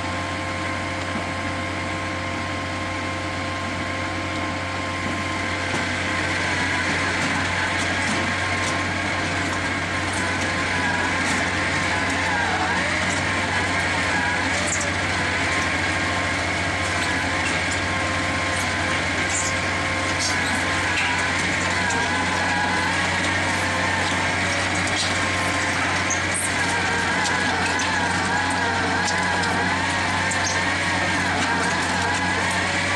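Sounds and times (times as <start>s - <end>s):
drilling rig diesel engine: 0.0s - 32.9s
wavering whine: 10.0s - 32.9s.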